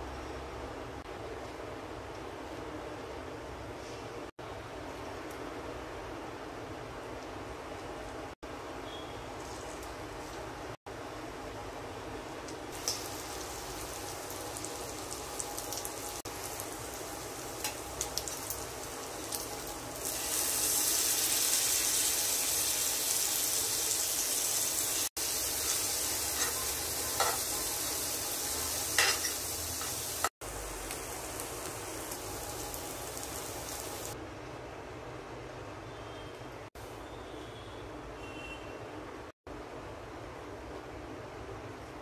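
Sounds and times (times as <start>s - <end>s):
food sizzling in oil: 12.7s - 34.2s.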